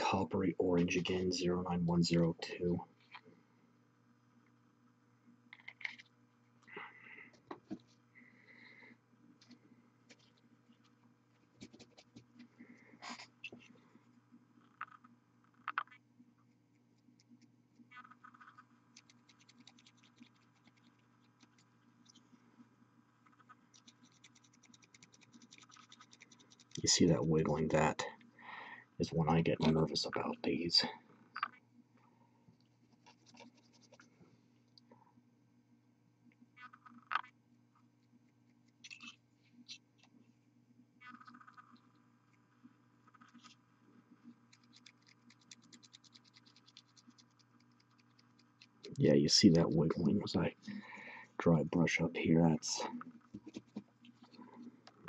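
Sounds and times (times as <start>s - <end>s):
paintbrush bristles scratching: 32.9s - 34.1s.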